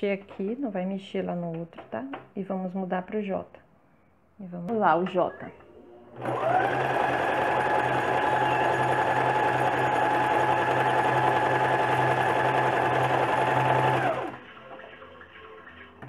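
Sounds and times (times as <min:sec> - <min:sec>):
sewing machine running: 0:06.2 - 0:14.5.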